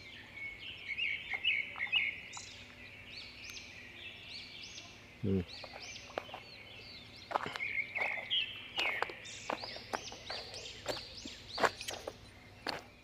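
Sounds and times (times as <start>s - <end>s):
small birds chirping: 0.0s - 13.0s
footsteps on loose stones: 7.2s - 13.0s.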